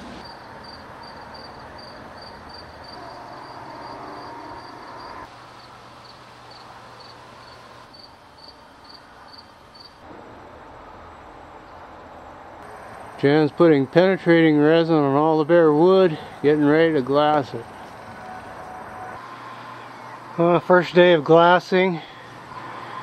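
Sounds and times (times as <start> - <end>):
faint outdoor background noise: 0.0 - 23.0
cricket chirping: 0.2 - 10.0.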